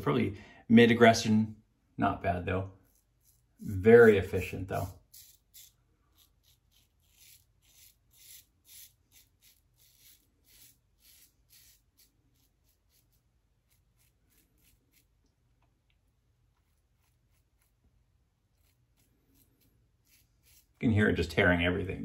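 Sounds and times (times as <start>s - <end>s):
razor scraping stubble: 2.7s - 15.3s, 16.5s - 21.8s.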